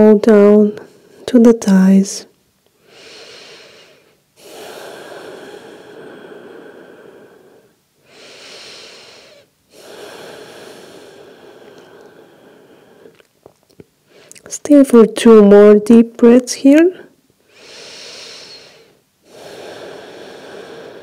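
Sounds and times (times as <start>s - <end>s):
woman breathing deeply: 2.8s - 13.3s, 17.4s - 21.0s.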